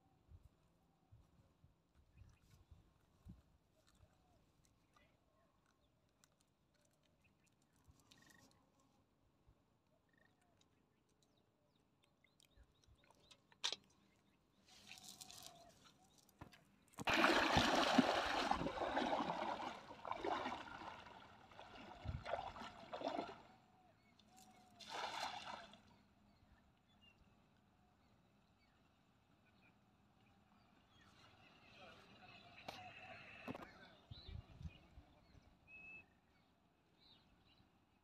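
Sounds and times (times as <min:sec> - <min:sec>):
water splashing around wading legs: 0:17.0 - 0:23.5, 0:24.4 - 0:25.8.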